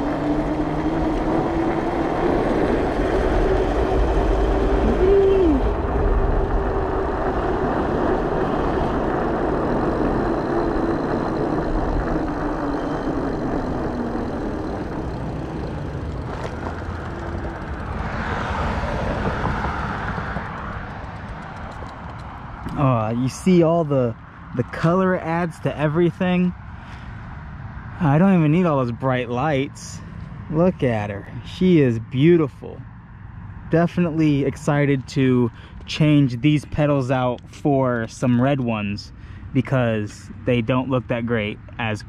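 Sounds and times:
wind rushing: 0:00.0 - 0:21.6
electric bike motor whining: 0:00.0 - 0:22.8
tyre noise: 0:00.0 - 0:23.9.

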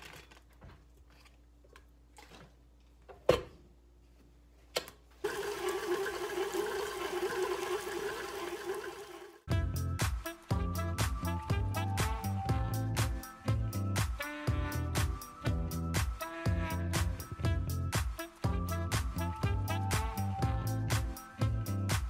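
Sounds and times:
stand mixer running: 0:05.2 - 0:09.4
background music with steady beat: 0:09.5 - 0:22.0.

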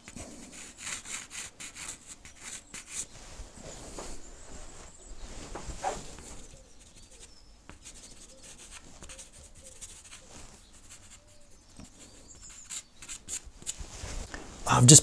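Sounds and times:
pastel stick rubbing on paper: 0:00.0 - 0:03.1, 0:05.8 - 0:13.8.

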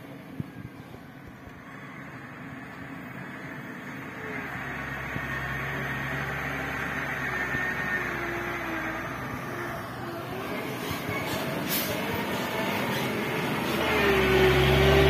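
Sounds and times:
truck diesel engine passing: 0:01.6 - 0:15.0.

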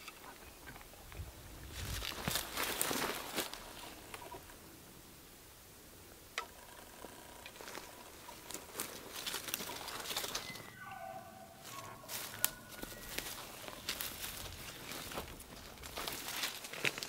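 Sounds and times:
footsteps through dry grass: 0:01.5 - 0:04.5, 0:07.5 - 0:17.0.

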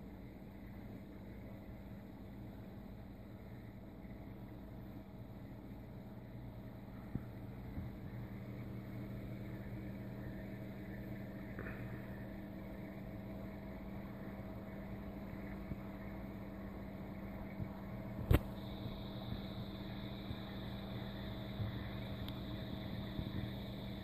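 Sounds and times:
aquarium air pump humming: 0:00.0 - 0:24.0
sharp click: 0:18.2 - 0:18.5.

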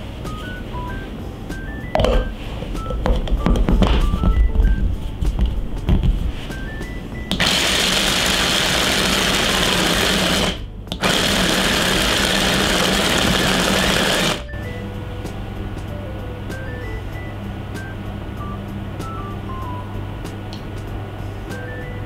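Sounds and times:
electric mini chopper grinding peanuts: 0:07.3 - 0:14.6.

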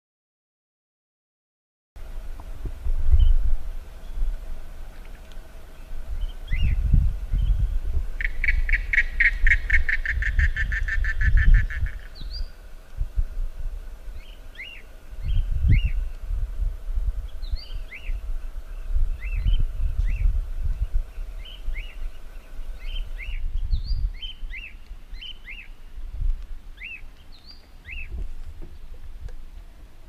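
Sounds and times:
gusty low rumble: 0:02.0 - 0:26.8
rapid pulsed bird trill: 0:03.1 - 0:12.7, 0:14.0 - 0:16.2, 0:17.2 - 0:26.0, 0:26.7 - 0:28.2.

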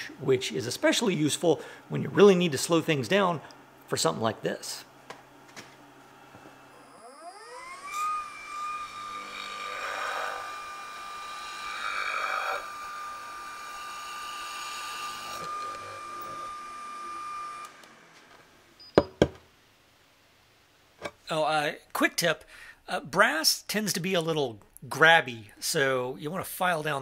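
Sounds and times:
router whining: 0:06.3 - 0:18.5
drill bit boring into metal: 0:06.7 - 0:17.7.

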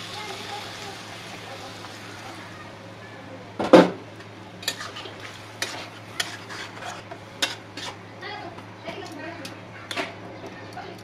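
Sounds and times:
metal spoon stirring vegetables: 0:04.2 - 0:08.0.

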